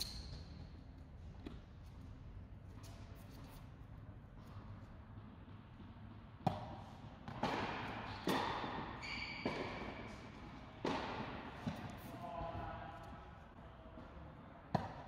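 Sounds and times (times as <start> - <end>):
ball bouncing with echo: 4.4 - 15.0
tennis racket striking ball: 5.1 - 13.2, 14.7 - 15.0.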